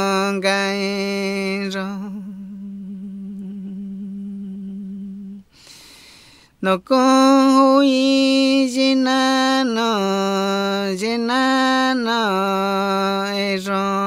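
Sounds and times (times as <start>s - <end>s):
breaths between phrases: 5.5s - 6.6s.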